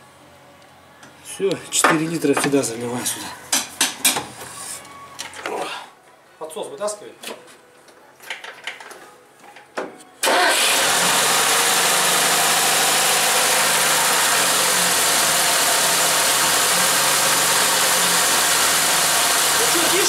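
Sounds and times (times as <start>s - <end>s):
car engine starting and idling: 10.2s - 20.0s.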